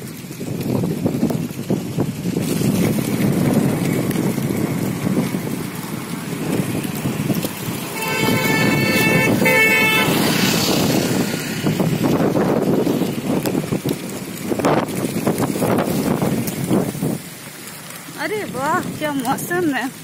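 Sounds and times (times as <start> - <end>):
road traffic passing: 0.0 - 20.0
wind buffeting microphone: 0.0 - 20.0
vehicle horn blasts: 8.0 - 10.2.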